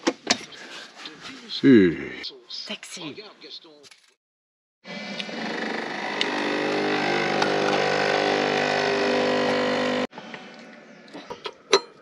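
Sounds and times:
coffee machine pump buzzing: 4.9s - 10.1s.

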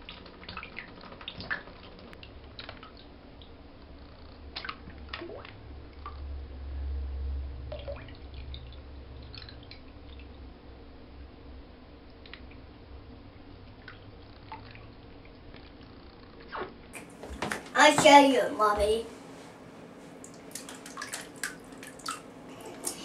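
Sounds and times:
bath gel dripping and squelching: 0.0s - 6.2s, 7.7s - 10.5s, 12.1s - 12.8s, 13.6s - 17.7s, 20.1s - 23.0s
low rumble: 5.5s - 11.8s.

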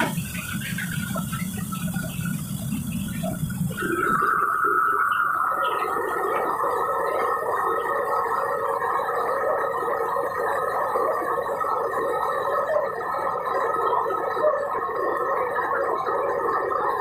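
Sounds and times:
gas burner roar: 0.0s - 17.0s
water boiling hard in a wok: 0.0s - 17.0s.

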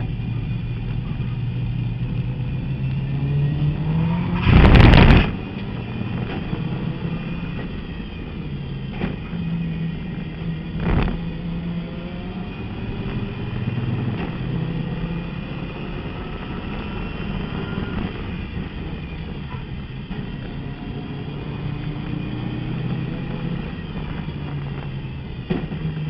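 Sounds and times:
loud thump: 4.4s - 5.4s
race car engine shifting gears: 12.9s - 15.1s.

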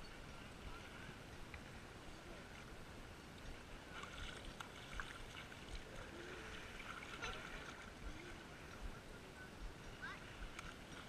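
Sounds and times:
children splashing in shallow water: 3.5s - 11.0s.

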